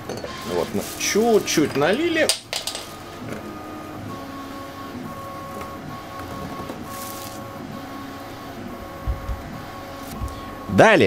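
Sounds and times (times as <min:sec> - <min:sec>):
plastic bag crinkling: 0:00.4 - 0:03.0, 0:06.9 - 0:07.4.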